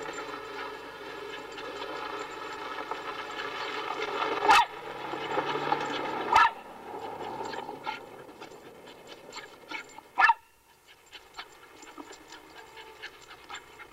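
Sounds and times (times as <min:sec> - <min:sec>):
dog panting: 0:00.0 - 0:04.1, 0:06.8 - 0:13.9.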